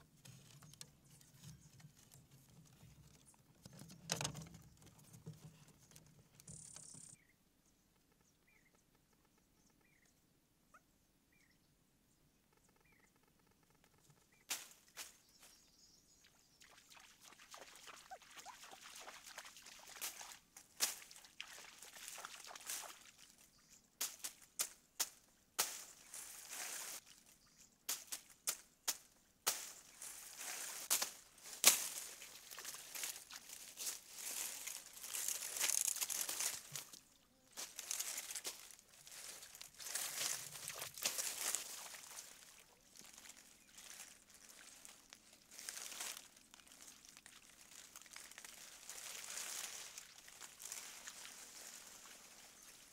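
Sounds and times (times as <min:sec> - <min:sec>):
machete hacking through grass: 0:24.0 - 0:25.9, 0:27.9 - 0:29.8, 0:30.9 - 0:32.0
rustling leaves: 0:24.0 - 0:27.3, 0:27.9 - 0:52.9.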